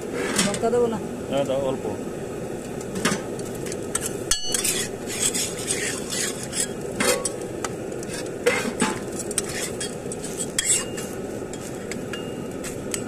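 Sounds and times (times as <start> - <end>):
griddle hissing: 0.0 - 13.0
metal spatula scraping iron: 3.9 - 7.4, 8.0 - 12.3
metallic clinks and scrapes: 4.0 - 7.4, 8.1 - 12.4.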